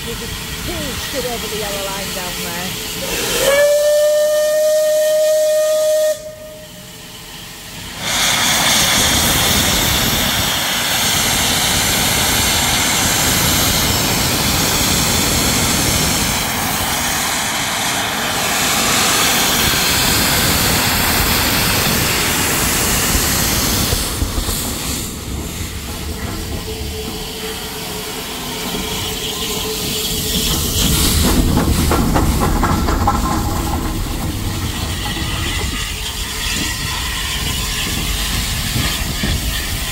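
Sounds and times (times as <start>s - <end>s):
steam locomotive hissing: 0.0s - 39.9s
steam whistle: 3.0s - 7.1s.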